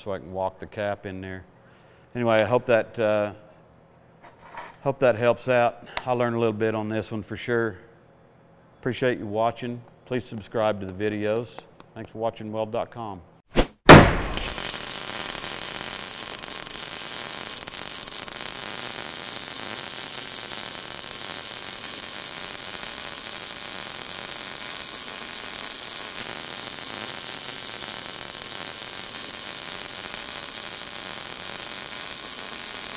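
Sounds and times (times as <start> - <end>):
welding arc sizzling: 14.2 - 32.9.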